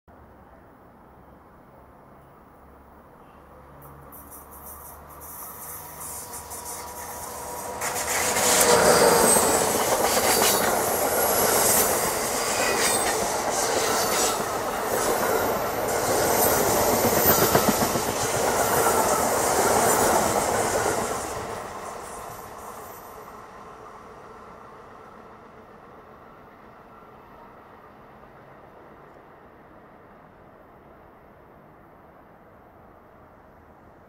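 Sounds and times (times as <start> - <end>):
train wheels on rails: 3.7 - 25.2.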